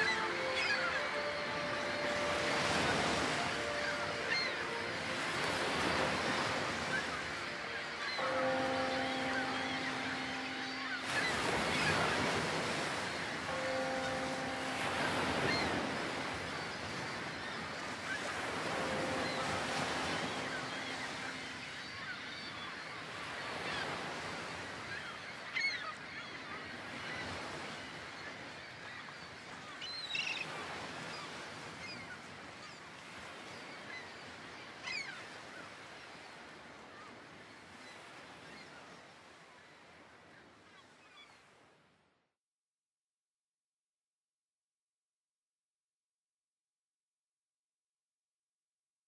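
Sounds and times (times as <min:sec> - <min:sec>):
low held tone: 0:07.0 - 0:12.5, 0:13.2 - 0:16.9.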